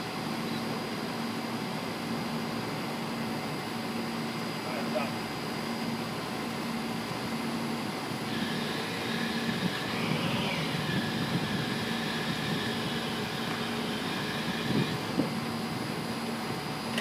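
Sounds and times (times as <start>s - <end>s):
crane engine running: 0.0s - 17.0s
thin whine: 7.5s - 17.0s.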